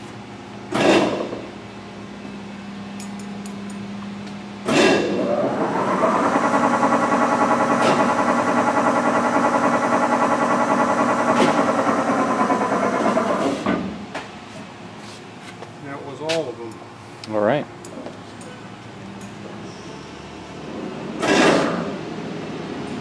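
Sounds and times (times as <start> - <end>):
lathe motor with gear whine: 5.2 - 13.4.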